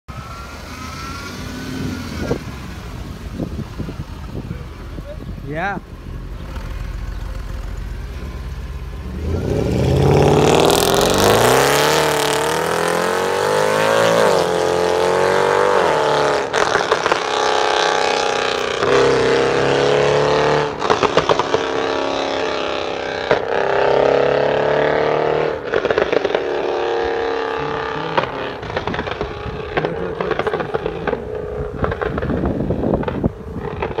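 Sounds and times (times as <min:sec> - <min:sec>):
car engine revving: 0:00.1 - 0:34.0.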